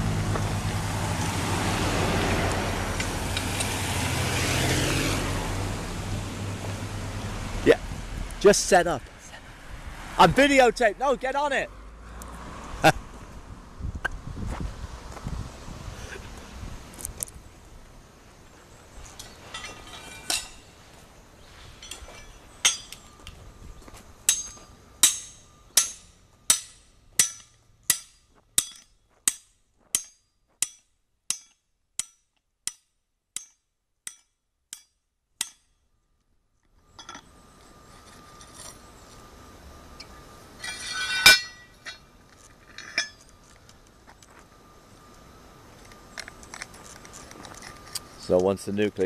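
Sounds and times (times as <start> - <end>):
sledgehammer striking steel pin: 21.8 - 23.0, 24.3 - 35.8, 40.6 - 42.0
loud metallic clank: 40.6 - 42.0.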